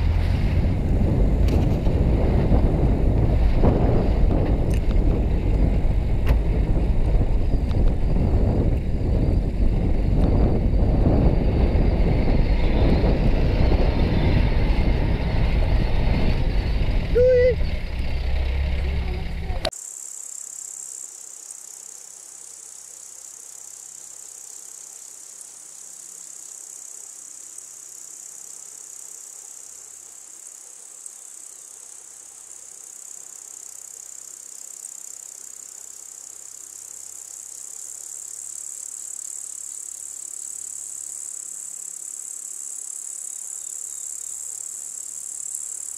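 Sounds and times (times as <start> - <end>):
loud low rumble: 0.0 - 19.7
insect chirring: 19.7 - 45.9.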